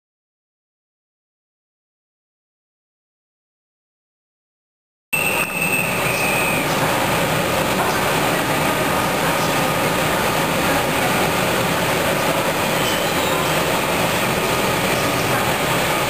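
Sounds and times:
high squeal: 0:05.2 - 0:06.8
train rumbling: 0:05.2 - 0:16.0.

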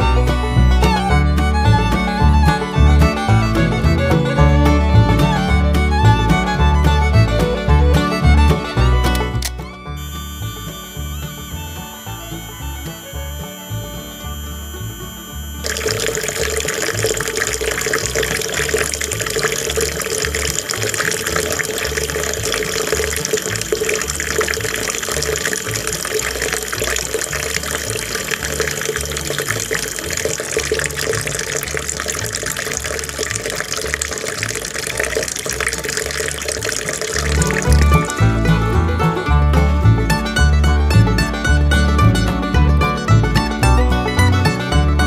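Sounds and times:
water stream splashing into pool: 0:15.6 - 0:38.5.

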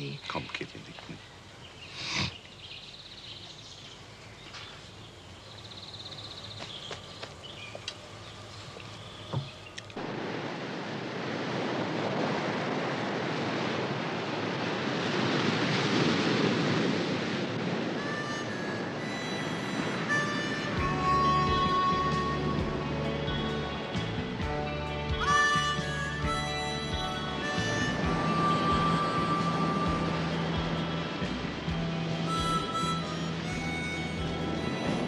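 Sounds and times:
ocean waves breaking: 0:08.9 - 0:35.0
music: 0:18.0 - 0:35.0.

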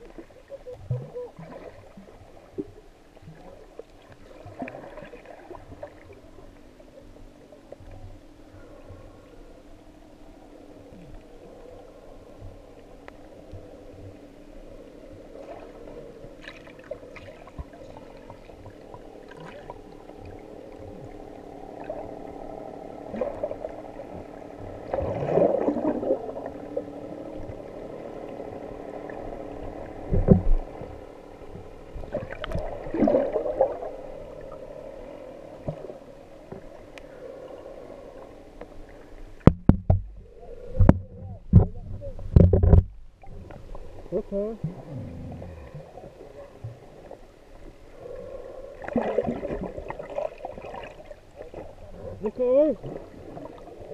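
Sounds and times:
bubbling and sloshing water: 0:00.0 - 0:53.9
low underwater hum: 0:00.0 - 0:53.9.

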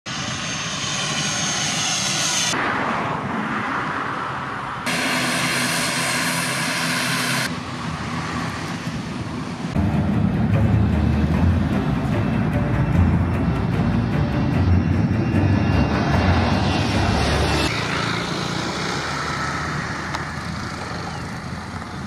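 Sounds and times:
turboprop engines running: 0:00.1 - 0:22.0
music: 0:09.8 - 0:17.7.

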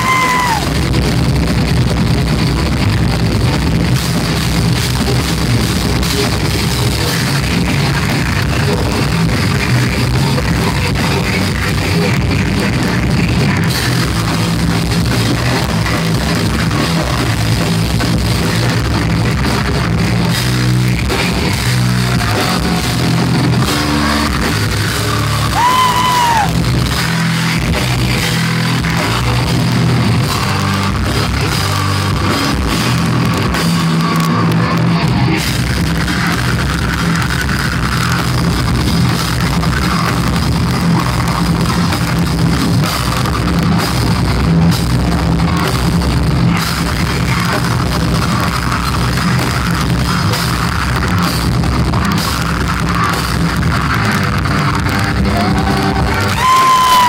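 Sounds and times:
vocalist screaming: 0:00.0 - 0:00.8, 0:25.4 - 0:26.6, 0:55.2 - 0:57.0
metal band playing: 0:00.0 - 0:57.0.

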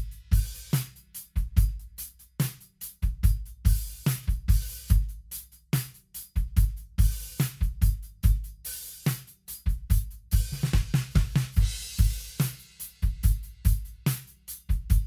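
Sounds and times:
hi-hat: 0:00.0 - 0:15.0
snare drum: 0:00.0 - 0:15.0
kick drum: 0:14.7 - 0:15.0.

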